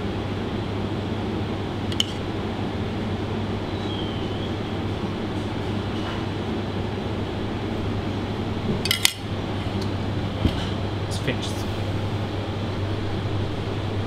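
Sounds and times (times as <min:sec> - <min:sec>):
kitchen ventilation hum: 0:00.0 - 0:14.0
metal utensil clinking: 0:08.9 - 0:09.2.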